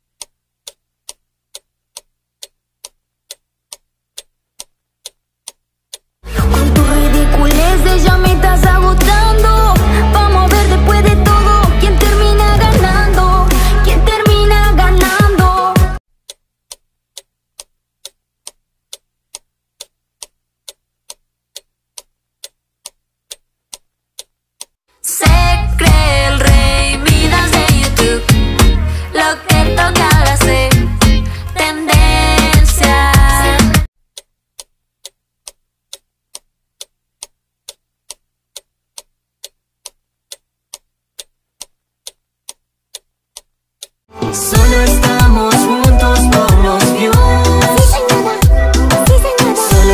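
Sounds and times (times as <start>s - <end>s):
clock ticking: 0.0s - 6.1s, 44.6s - 49.9s
pop song: 6.3s - 16.0s, 25.0s - 33.9s, 44.1s - 49.9s.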